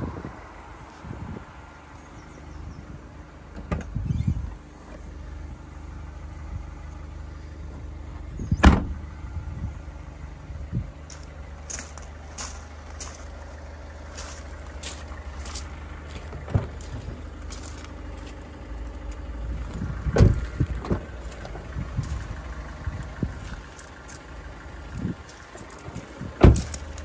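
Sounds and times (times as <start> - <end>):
diesel engine idling: 0.0 - 27.0
loud thump: 8.6 - 9.0, 20.1 - 21.0
car door handle clunks: 20.1 - 21.1, 26.4 - 26.7.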